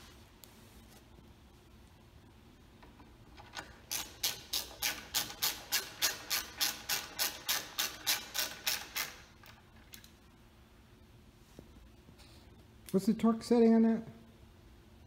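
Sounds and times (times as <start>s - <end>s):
ratchet wrench clicking: 3.9s - 9.2s.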